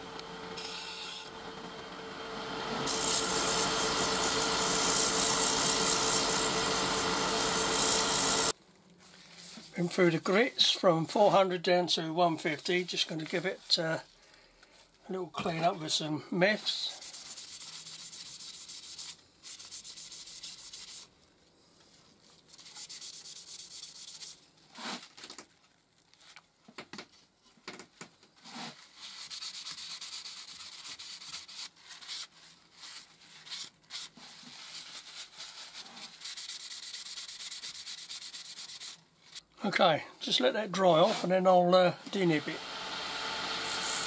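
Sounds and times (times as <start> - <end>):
paper towel rubbing on wood: 16.9 - 21.1, 22.5 - 25.1, 28.4 - 39.4, 41.0 - 41.3.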